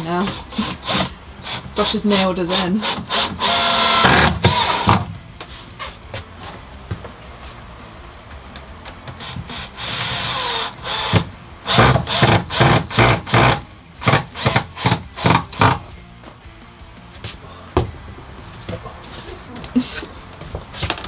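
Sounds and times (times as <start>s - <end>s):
cordless drill driving screws: 0.2s - 5.0s, 9.2s - 15.8s.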